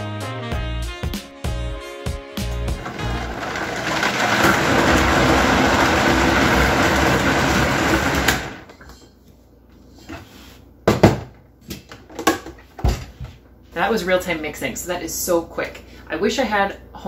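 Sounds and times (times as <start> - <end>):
blender motor running: 2.7 - 8.7
blender spinning down: 2.7 - 8.7.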